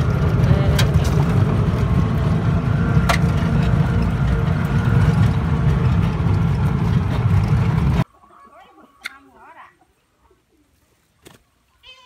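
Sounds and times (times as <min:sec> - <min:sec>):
auto-rickshaw engine running: 0:00.0 - 0:08.0.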